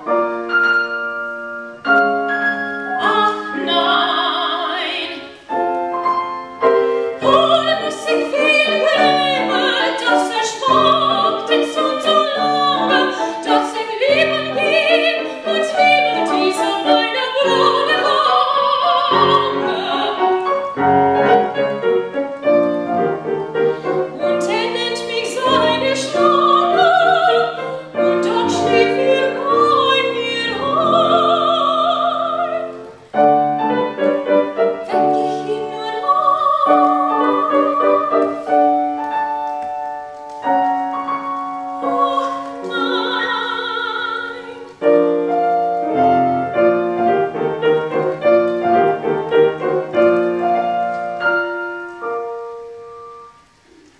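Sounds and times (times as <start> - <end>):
grand piano: 0.0 - 53.9
woman singing operatically: 3.0 - 5.4, 7.2 - 20.5, 24.2 - 33.0, 34.8 - 38.7, 41.8 - 44.8.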